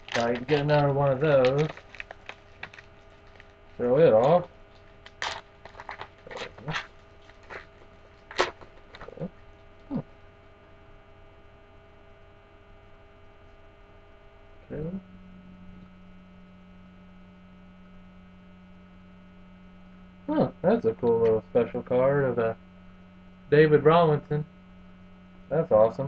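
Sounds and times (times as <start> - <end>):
trading cards clicking and rustling: 0.0 - 9.3
electrical hum: 0.0 - 26.0.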